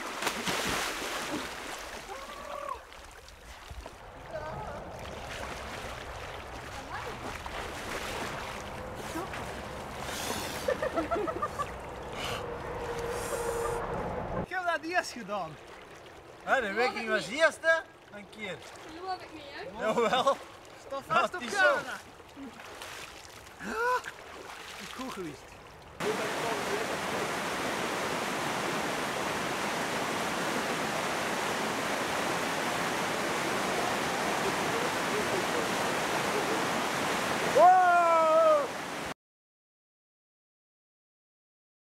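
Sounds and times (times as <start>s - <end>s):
water splashing: 0.0s - 14.2s, 14.8s - 39.1s
river current rushing: 0.0s - 39.1s
person gasping yelps: 23.6s - 24.0s.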